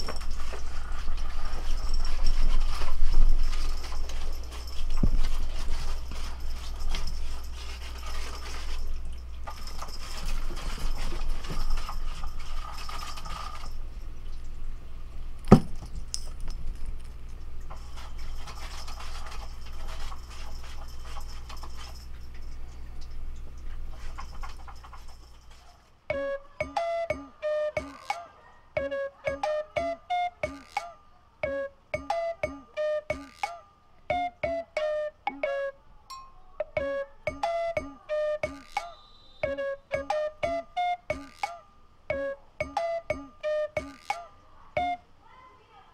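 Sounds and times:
cat scratching on wooden shelf: 0.0s - 13.7s, 17.8s - 22.1s.

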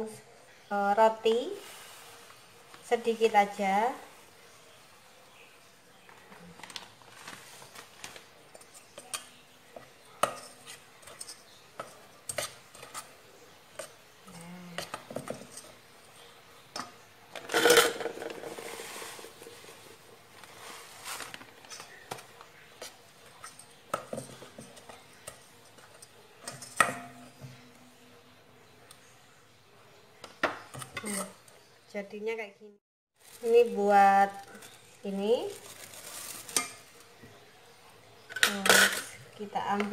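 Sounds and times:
wire whisk mixing batter: 8.4s - 16.9s, 17.6s - 27.4s, 36.4s - 37.1s.

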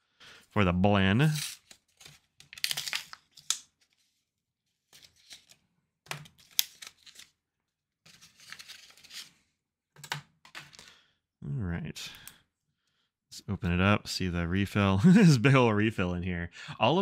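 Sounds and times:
plastic packaging crinkling: 1.4s - 3.6s.

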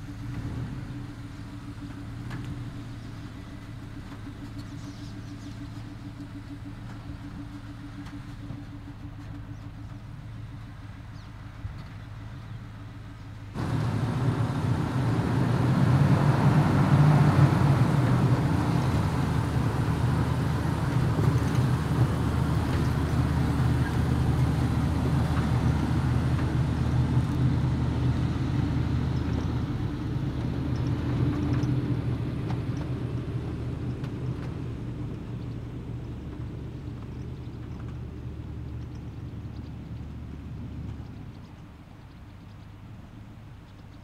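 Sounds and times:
pickup truck driving past: 13.6s - 41.3s.

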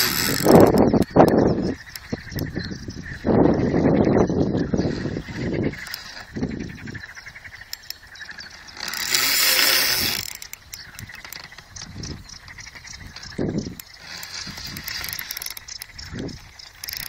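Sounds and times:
fishing reel clicker ticking: 0.0s - 2.5s, 7.4s - 11.6s, 13.2s - 17.0s.

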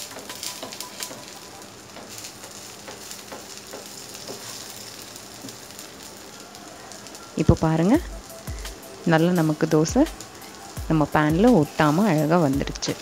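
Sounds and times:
oil sizzling in a pan: 0.0s - 13.0s
wooden spatula scraping a pan: 2.0s - 5.6s.

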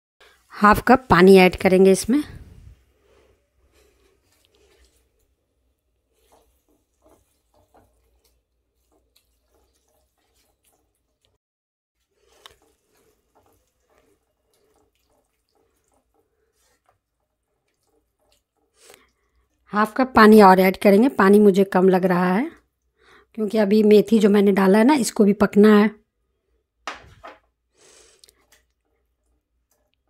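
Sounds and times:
spatula stirring wet leaves in pan: 2.8s - 11.4s, 12.0s - 21.4s, 27.7s - 30.0s.

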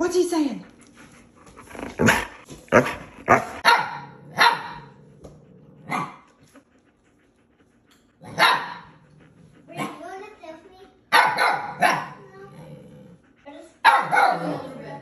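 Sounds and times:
adult dog barking vocalisations: 2.8s - 4.9s, 8.2s - 9.0s, 9.7s - 12.5s, 13.8s - 15.0s
puppy yelling bark: 3.3s - 4.9s, 8.2s - 9.0s, 11.1s - 12.3s, 13.8s - 14.7s.

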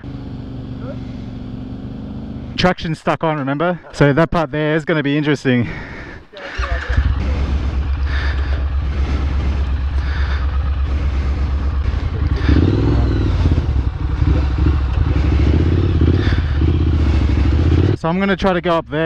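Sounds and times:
motorcycle engine running: 0.0s - 2.6s, 6.5s - 18.1s.

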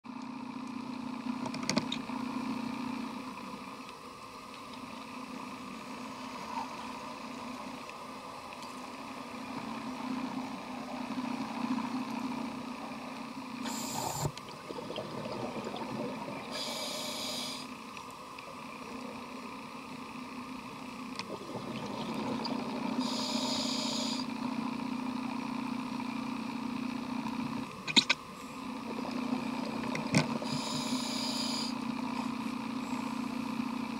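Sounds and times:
regulator inhalation hiss: 13.6s - 14.4s, 16.5s - 17.7s, 23.0s - 24.3s, 30.4s - 31.8s
exhaled bubbles rumbling: 14.1s - 16.6s, 21.2s - 22.9s, 28.7s - 30.4s.

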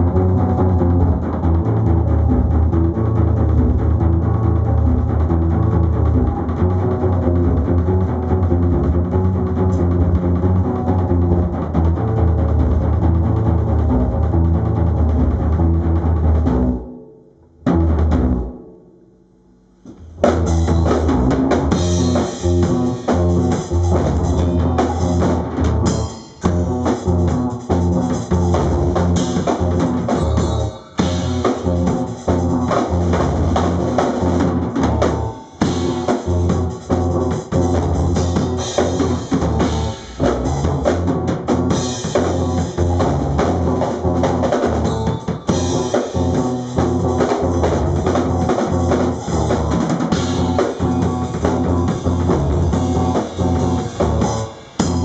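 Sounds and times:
live band playing: 20.2s - 55.0s.

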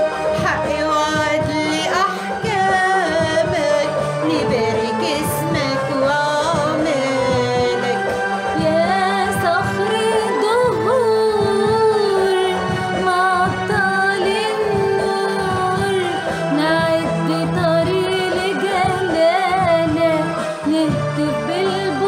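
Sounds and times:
instrumental backing with steady beat: 0.0s - 22.0s
women singing a hymn: 0.5s - 22.0s.

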